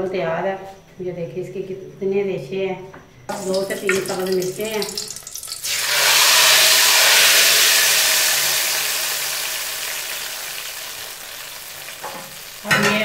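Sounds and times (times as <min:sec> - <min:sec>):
hot ghee sizzling: 0:03.3 - 0:13.0.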